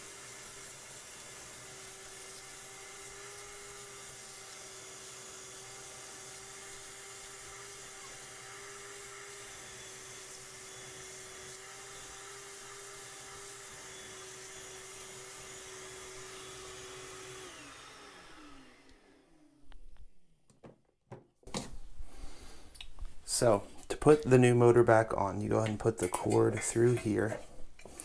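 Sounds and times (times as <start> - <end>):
shop vac motor whine: 0.0 - 19.8
motor spinning down: 1.5 - 19.6.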